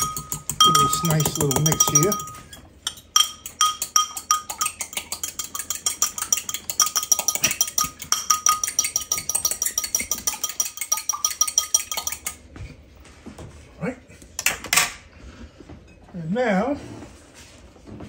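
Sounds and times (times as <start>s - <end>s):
utensil beating egg in ceramic bowl: 0.0s - 12.4s.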